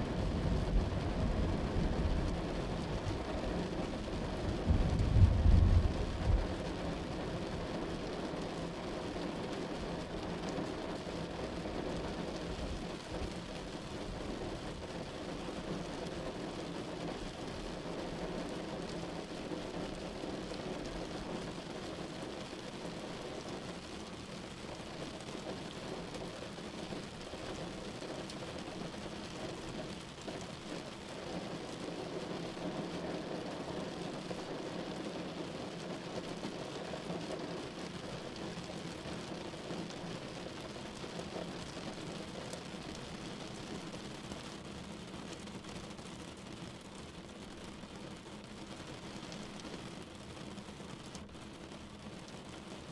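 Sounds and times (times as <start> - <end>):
steady rushing noise: 0.0 - 7.5
low rumble: 4.6 - 6.6.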